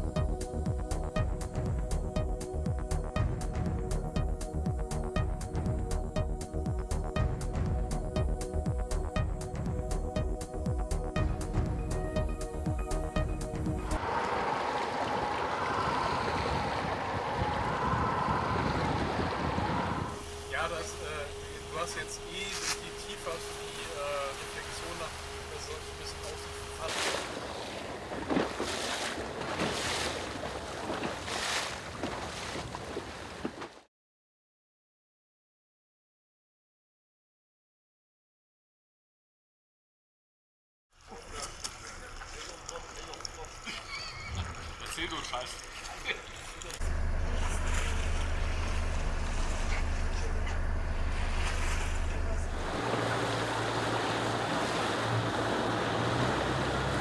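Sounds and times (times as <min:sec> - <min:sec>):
motorboat engine hum: 0:00.0 - 0:33.4, 0:41.2 - 0:57.0
water splashing and churning: 0:10.6 - 0:33.8, 0:41.0 - 0:57.0.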